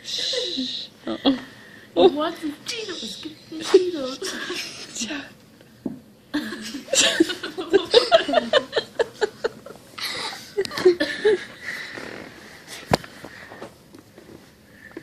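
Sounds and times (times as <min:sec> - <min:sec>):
person laughing in pulsed bursts: 0:00.0 - 0:01.4, 0:06.3 - 0:11.7.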